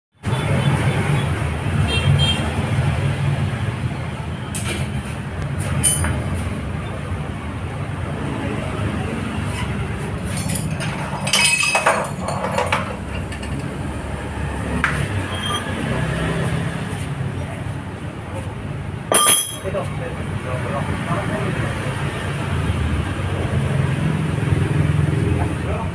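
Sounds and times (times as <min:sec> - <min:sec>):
metal clinks and knocks: 0:10.2 - 0:13.8, 0:19.1 - 0:19.7.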